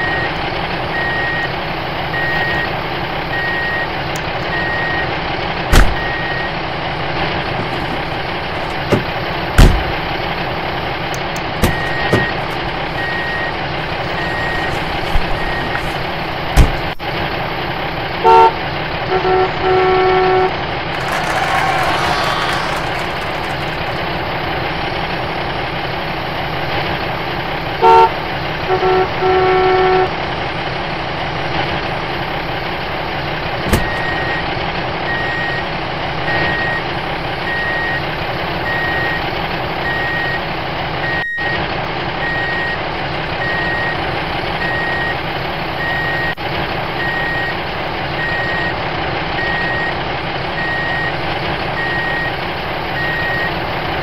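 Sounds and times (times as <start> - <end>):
diesel truck engine running: 0.0 - 54.0
truck horn tooting: 18.2 - 24.1, 27.8 - 30.2.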